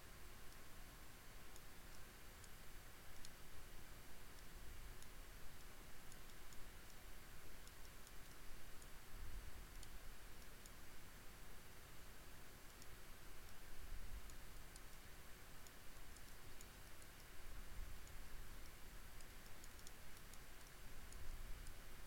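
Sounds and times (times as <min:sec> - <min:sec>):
microphone hiss and hum: 0:00.0 - 0:22.0
computer mouse clicks: 0:01.4 - 0:03.5, 0:04.3 - 0:09.0, 0:09.6 - 0:10.9, 0:12.6 - 0:21.8.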